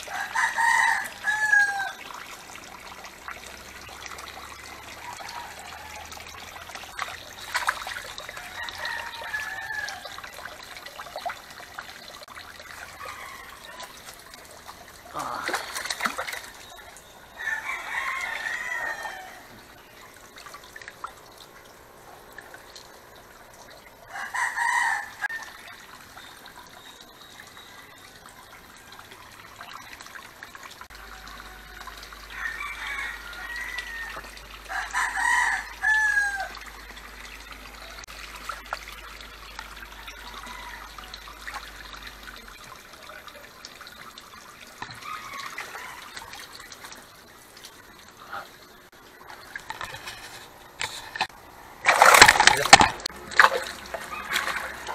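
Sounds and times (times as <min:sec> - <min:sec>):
rooster crowing: 0:00.0 - 0:02.0, 0:08.4 - 0:10.2, 0:12.9 - 0:13.9, 0:17.3 - 0:19.7, 0:24.1 - 0:25.5, 0:31.0 - 0:36.6, 0:45.0 - 0:46.3
water trickling into tank: 0:00.0 - 0:54.9.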